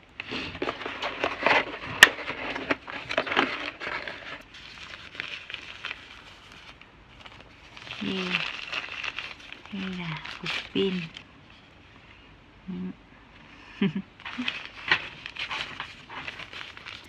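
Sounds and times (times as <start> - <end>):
packaging rustling and crinkling: 0.2 - 11.3, 14.2 - 17.0.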